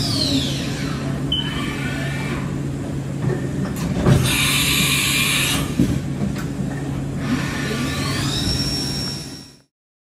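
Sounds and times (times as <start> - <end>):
machine hum: 0.0 - 9.7.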